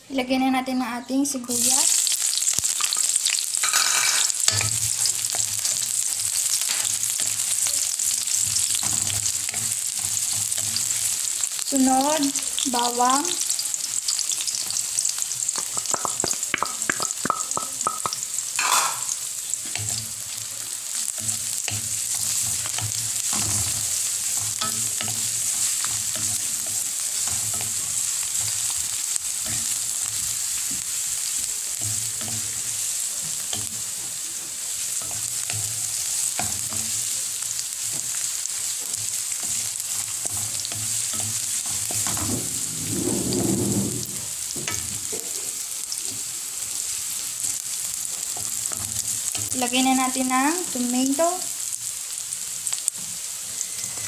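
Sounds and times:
onions sizzling in hot oil: 0.2s - 54.0s
spatula scraping wok: 1.6s - 11.6s, 18.6s - 49.9s, 53.4s - 54.0s.

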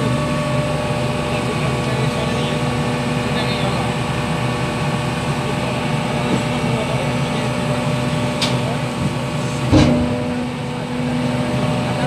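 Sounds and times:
garbage truck engine running: 0.0s - 12.0s
loud clunk: 9.7s - 10.8s.

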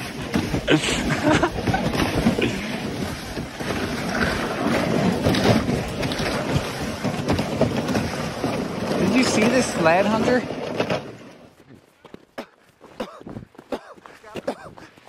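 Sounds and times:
plastic sled scraping over ice: 0.0s - 12.0s.

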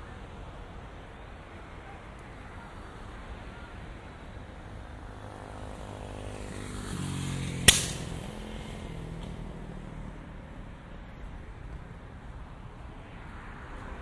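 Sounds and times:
vehicle engine passing by: 5.1s - 11.4s
sharp bang: 7.7s - 8.3s.

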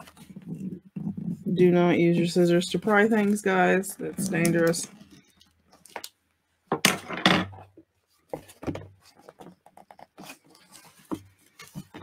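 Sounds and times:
paper rustling and crinkling: 8.1s - 12.0s.

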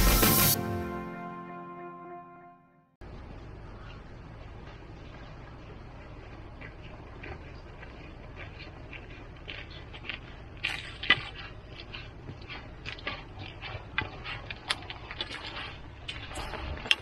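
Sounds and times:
footsteps on wet asphalt: 4.4s - 17.0s.

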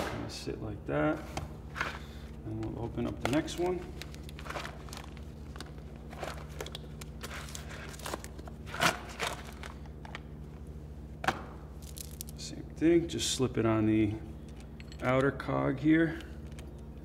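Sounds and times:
steady low hum: 0.0s - 17.0s
paper packet crinkling: 3.3s - 10.3s.

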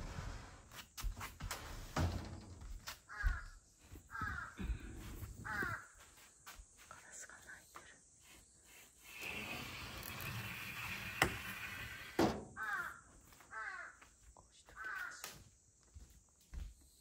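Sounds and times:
rustling scrape: 0.0s - 2.0s, 8.2s - 12.2s
crow cawing: 3.1s - 6.0s, 12.5s - 14.2s, 14.8s - 15.4s.

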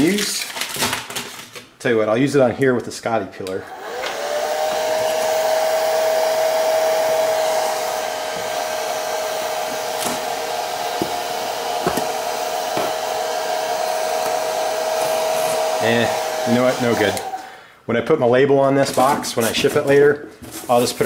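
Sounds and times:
hair dryer running: 3.6s - 17.6s.

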